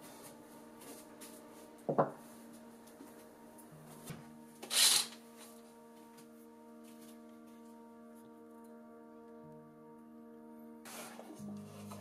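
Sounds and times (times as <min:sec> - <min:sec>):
soft background music: 0:00.0 - 0:12.0
wooden box knock on table: 0:01.9 - 0:02.2.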